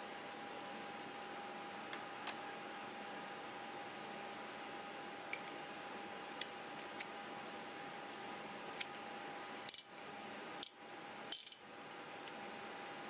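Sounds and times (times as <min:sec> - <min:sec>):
metallic clicks and clinks: 0:10.6 - 0:11.6.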